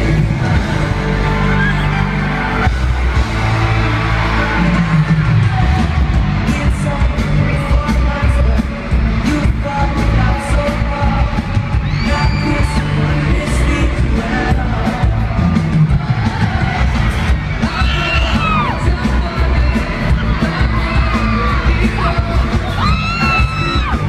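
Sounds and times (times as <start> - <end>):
fans yelling and whooping: 0.0 - 24.0
pop-rock band live: 0.0 - 24.0.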